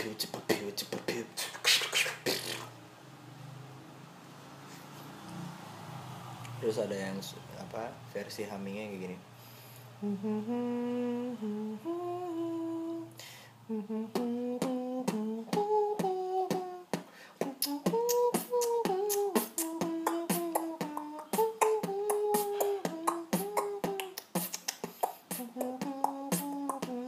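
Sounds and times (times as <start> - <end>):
man humming melody: 10.0 - 27.0
mouth percussive clicks: 14.2 - 27.0.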